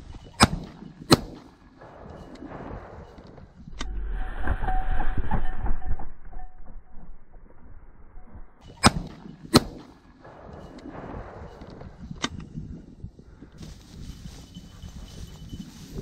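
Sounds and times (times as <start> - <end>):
shotgun shots: 0.4 - 3.7, 8.6 - 12.2.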